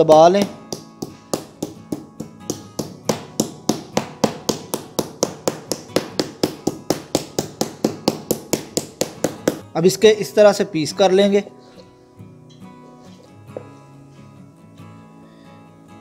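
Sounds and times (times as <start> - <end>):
meat mallet pounding chicken: 0.0 - 9.6.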